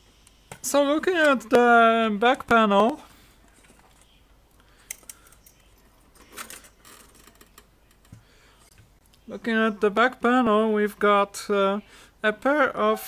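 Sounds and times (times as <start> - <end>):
cables rustling: 2.7 - 9.2.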